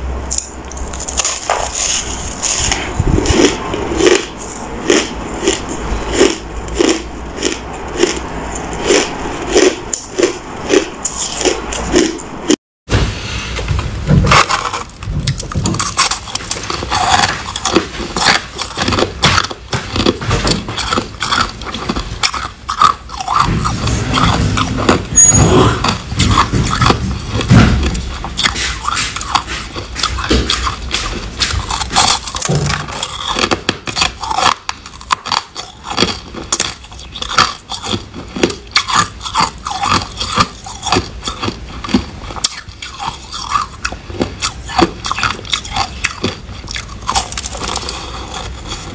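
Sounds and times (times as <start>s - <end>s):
person chewing crushed ice: 0.1s - 12.6s, 14.1s - 48.9s.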